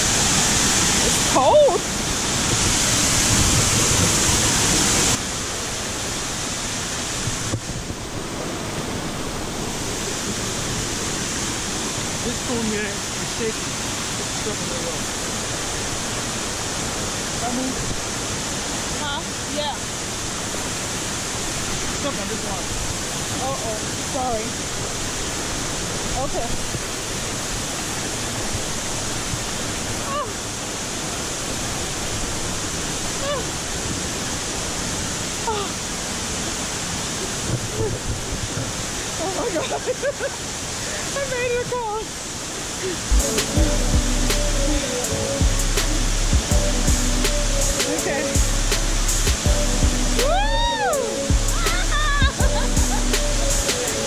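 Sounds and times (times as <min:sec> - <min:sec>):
waterfall rushing over rocks: 0:00.0 - 0:54.0.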